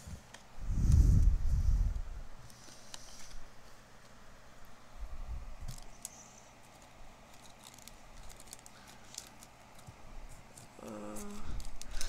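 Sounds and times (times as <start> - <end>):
trading cards clicking and rustling: 2.4 - 3.4, 5.6 - 12.0.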